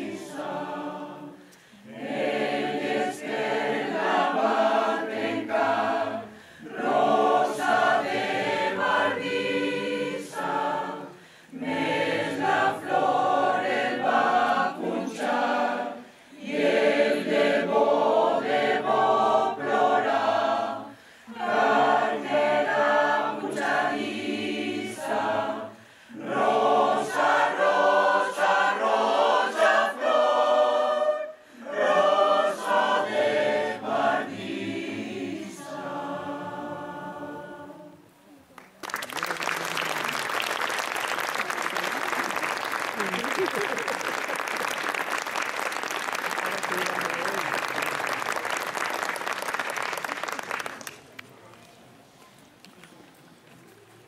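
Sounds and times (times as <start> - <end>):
choir singing a cappella: 0.0 - 38.3
singers breathing: 1.4 - 1.9, 6.3 - 6.7, 11.1 - 11.6, 16.0 - 16.4, 20.9 - 21.4, 25.7 - 26.2, 31.3 - 31.7.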